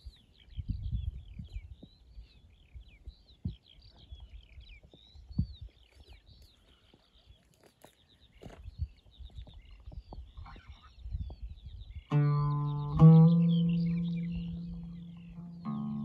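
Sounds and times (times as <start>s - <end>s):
songbirds chirping: 0.0s - 16.0s
footsteps in dry grass: 4.7s - 10.8s.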